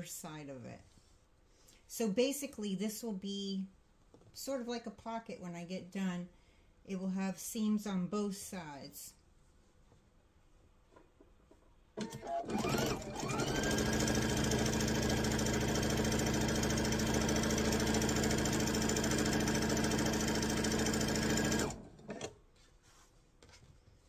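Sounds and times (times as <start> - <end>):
sewing machine stitching: 12.0 - 22.4.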